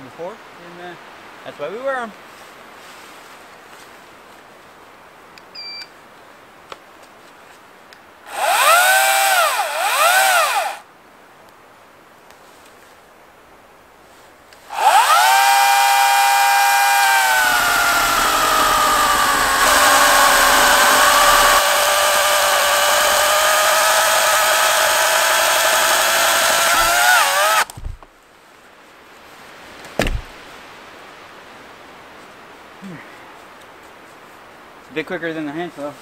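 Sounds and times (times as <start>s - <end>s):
chainsaw cutting a log: 8.3s - 10.8s, 14.7s - 27.9s.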